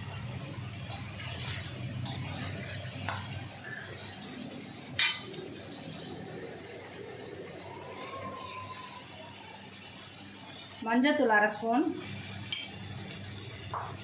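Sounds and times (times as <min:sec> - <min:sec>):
metal spoon scraping metal pan: 0:05.0 - 0:05.3.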